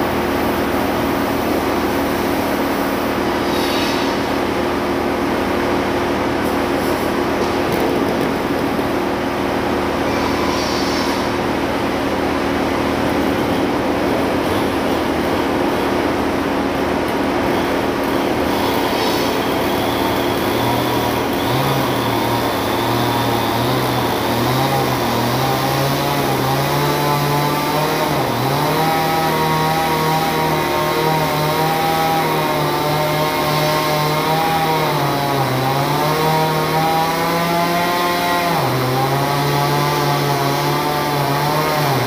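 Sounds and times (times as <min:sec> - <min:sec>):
chainsaw engine idling: 0:17.6 - 0:41.4.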